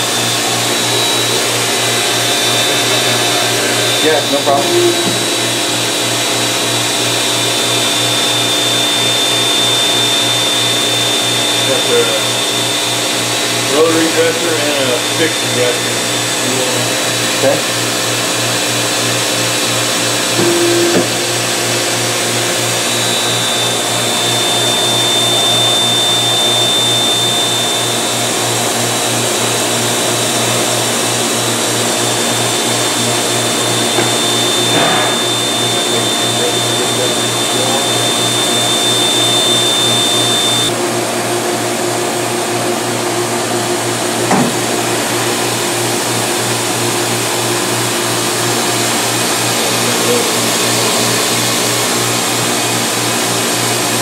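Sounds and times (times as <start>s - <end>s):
thin high whine: 0.0s - 17.6s, 20.2s - 40.8s
grinding machine whirring with hiss: 0.0s - 54.0s.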